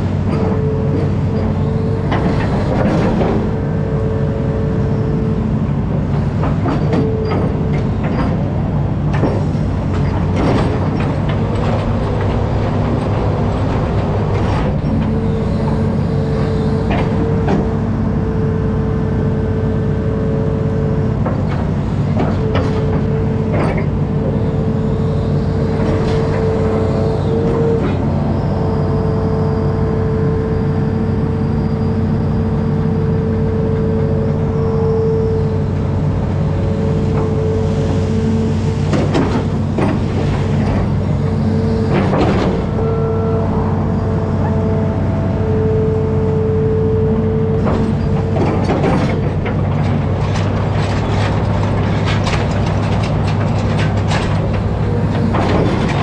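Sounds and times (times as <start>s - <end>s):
diesel engine running under load: 0.0s - 56.0s
metallic knocks and creaks: 47.6s - 56.0s.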